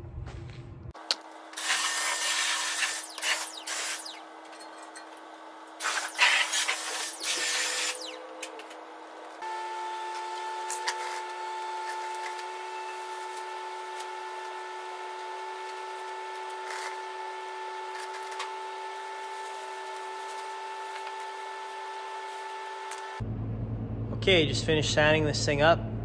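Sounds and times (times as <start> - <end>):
power sander running: 9.4 - 23.2.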